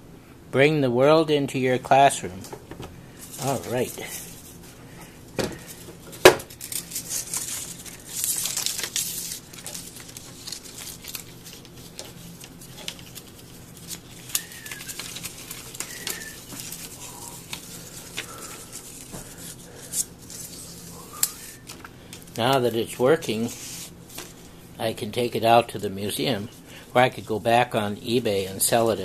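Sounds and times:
plastic film crinkling: 0:05.6 - 0:24.5.

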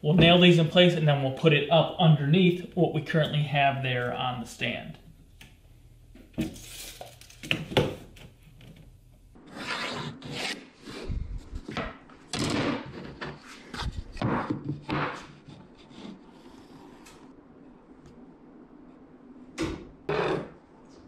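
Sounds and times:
pencil scratching on plywood: 0:09.5 - 0:11.1, 0:15.4 - 0:17.1.

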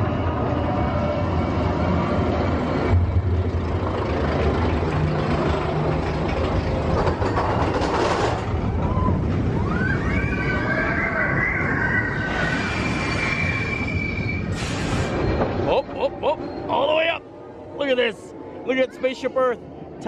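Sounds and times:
roller coaster wheels rumbling: 0:00.0 - 0:20.0
high wheel squeal: 0:08.8 - 0:17.0.

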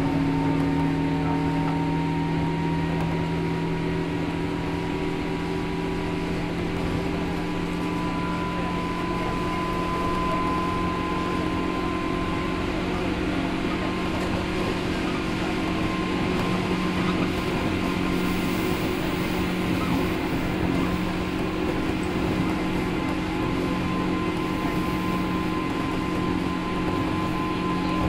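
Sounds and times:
high motor whine: 0:00.0 - 0:28.0
train rumbling: 0:00.0 - 0:28.0
train traction motor hum: 0:00.0 - 0:28.0.

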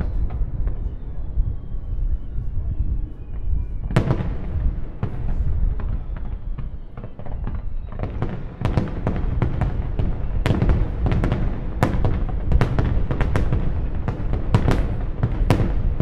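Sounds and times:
deep firework booms: 0:03.3 - 0:16.0.

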